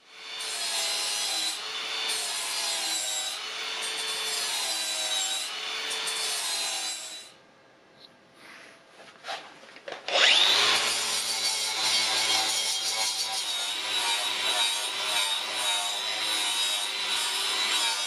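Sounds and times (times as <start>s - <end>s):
angle grinder grinding metal: 10.1s - 18.0s.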